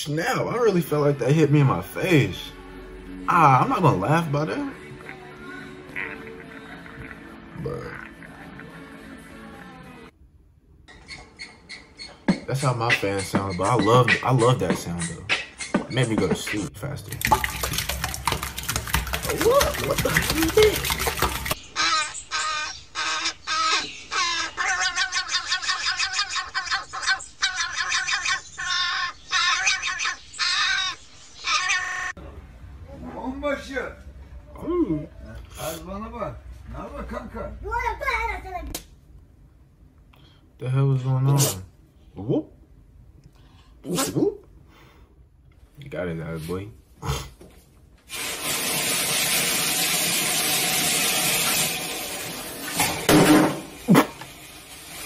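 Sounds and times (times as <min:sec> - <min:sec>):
water gushing from faucet into tub: 0:16.8 - 0:21.6, 0:48.1 - 0:55.0
crow cawing: 0:21.7 - 0:32.1.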